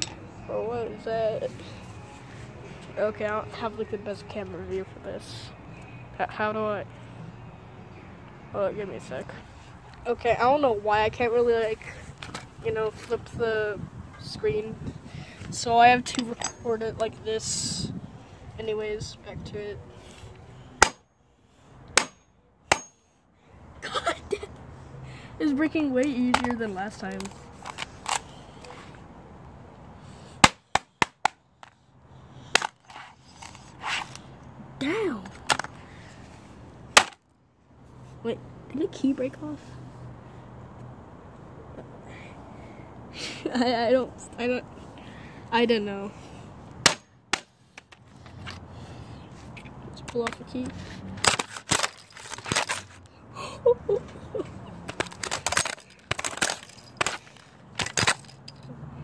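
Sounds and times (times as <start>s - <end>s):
plastic cracking and breaking: 51.2s - 53.0s, 54.9s - 58.3s.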